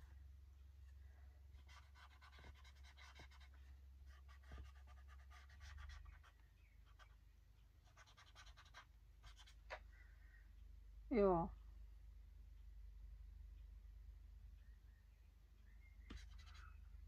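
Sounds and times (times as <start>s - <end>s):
low steady hum: 0.0s - 17.0s
colouring strokes on paper: 1.5s - 7.2s, 7.8s - 9.6s, 16.1s - 16.8s.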